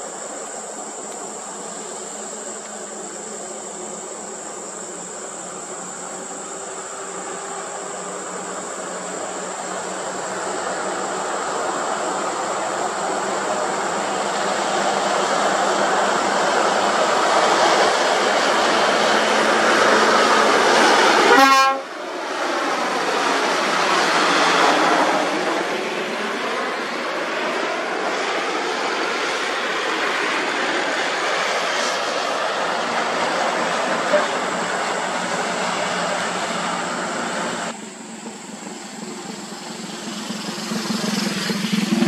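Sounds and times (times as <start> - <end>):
heavy truck engine and tyres: 0.0 - 42.0
truck horn blast: 21.3 - 21.9.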